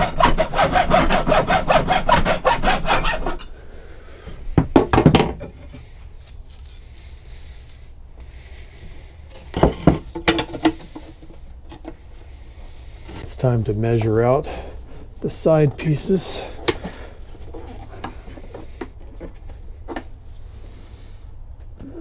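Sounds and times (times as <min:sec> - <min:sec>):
hacksaw cutting metal: 0:00.0 - 0:03.5.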